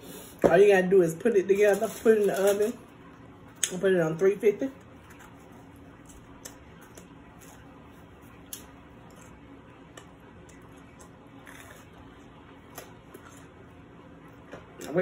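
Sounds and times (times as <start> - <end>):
low steady hum: 0.0 - 15.0
paper napkin rustling: 1.5 - 2.8
person chewing crispy flatbread: 4.8 - 14.5.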